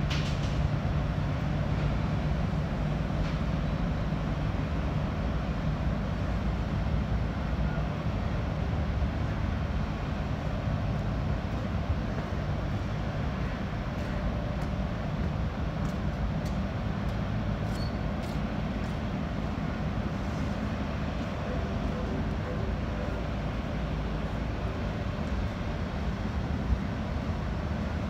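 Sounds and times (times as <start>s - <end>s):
low rumble of ship engines: 0.0s - 28.0s.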